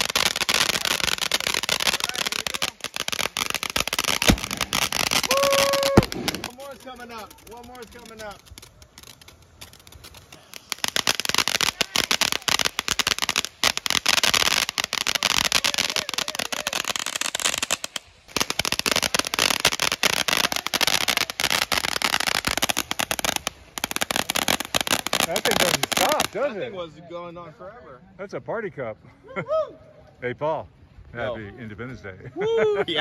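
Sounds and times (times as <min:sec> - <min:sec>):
fireworks hiss: 0:00.0 - 0:26.6
fireworks crackling: 0:00.0 - 0:27.0.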